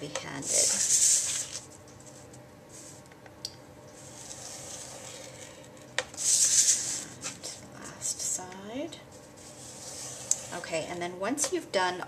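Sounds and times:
stylus scraping paper: 0.4s - 1.7s, 4.0s - 5.6s, 6.2s - 7.4s, 9.2s - 10.9s.

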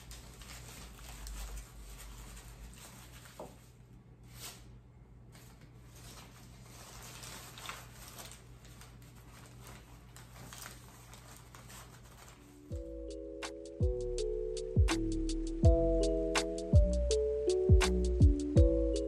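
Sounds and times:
faint rustling of stems: 0.0s - 4.7s, 5.3s - 12.7s.

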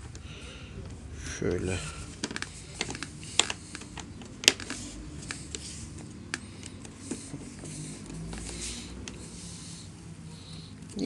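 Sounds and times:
plastic cover clicking: 2.2s - 7.1s.

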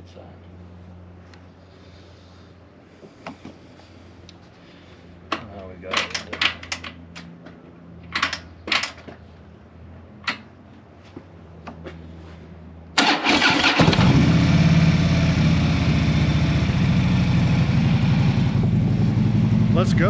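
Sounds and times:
motorcycle engine idling: 14.0s - 20.0s.

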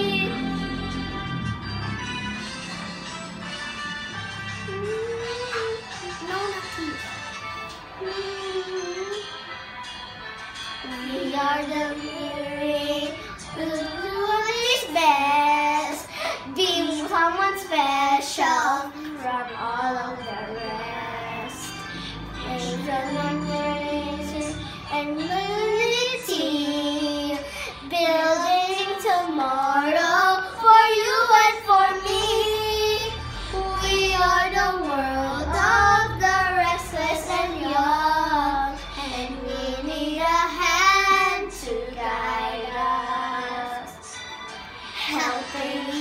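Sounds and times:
girls singing: 0.0s - 1.9s, 10.8s - 44.2s, 44.9s - 46.0s
music backing track: 0.0s - 46.0s.

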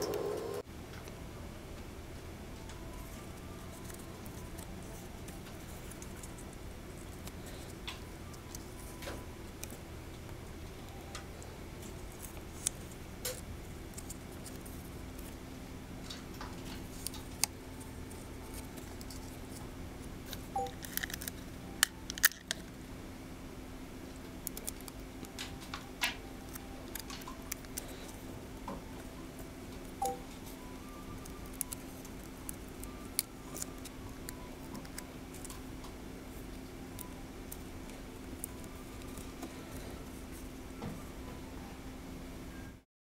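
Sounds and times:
steady low hum: 0.0s - 42.8s
fingers handling paper: 2.8s - 9.8s, 11.8s - 15.4s, 16.8s - 22.6s, 24.4s - 28.3s, 29.8s - 40.5s.

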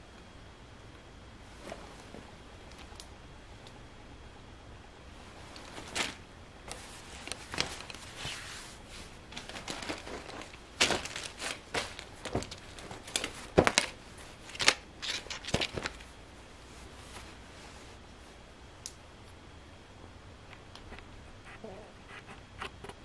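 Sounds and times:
plastic packaging crinkling: 9.3s - 16.1s.

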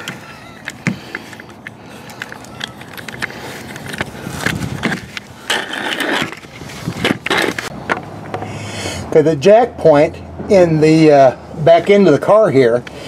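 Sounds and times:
camera handling clicks and scraping: 0.0s - 8.5s.

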